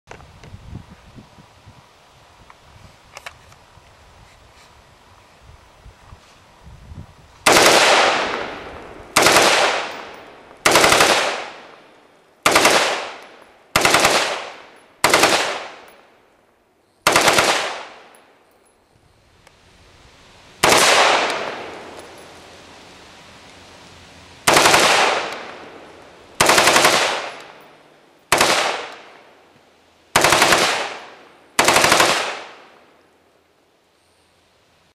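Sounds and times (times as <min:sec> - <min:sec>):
rifle firing rapid bursts: 0:07.5 - 0:08.4, 0:09.2 - 0:10.0, 0:10.6 - 0:11.7, 0:12.4 - 0:13.2, 0:13.8 - 0:15.8, 0:17.0 - 0:18.0, 0:20.6 - 0:21.6, 0:24.5 - 0:25.6, 0:26.4 - 0:27.6, 0:28.3 - 0:29.1, 0:30.2 - 0:32.7.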